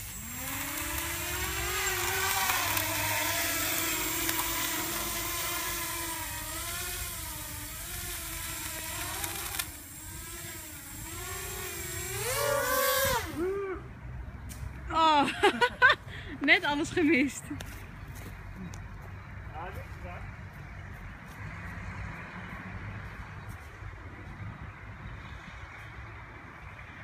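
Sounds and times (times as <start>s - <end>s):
drone motors whirring: 0.0s - 13.8s.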